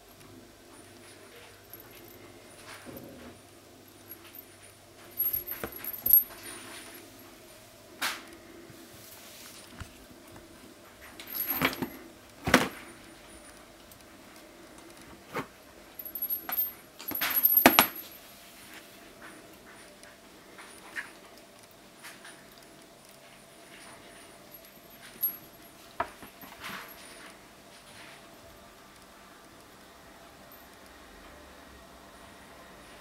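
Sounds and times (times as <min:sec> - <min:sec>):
toy rattling over floor: 0:05.1 - 0:07.0, 0:16.0 - 0:18.2.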